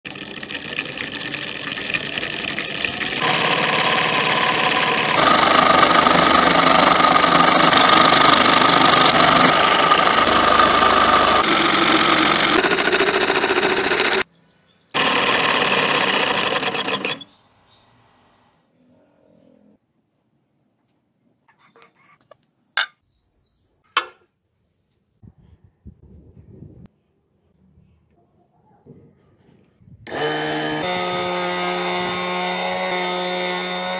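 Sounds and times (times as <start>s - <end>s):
scroll saw cutting wood: 0.1s - 14.3s, 15.0s - 17.4s, 30.1s - 33.9s
small motor running: 0.1s - 14.3s, 15.0s - 17.3s, 30.1s - 33.9s.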